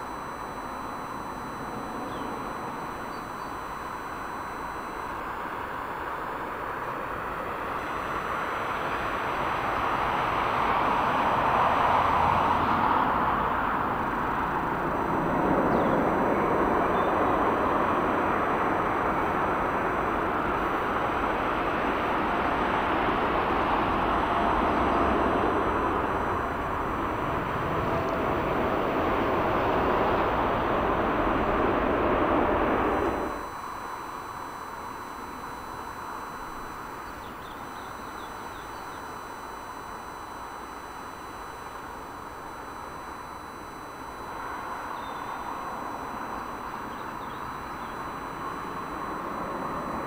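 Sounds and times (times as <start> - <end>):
jet engines rushing: 6.6 - 33.4, 44.4 - 50.0.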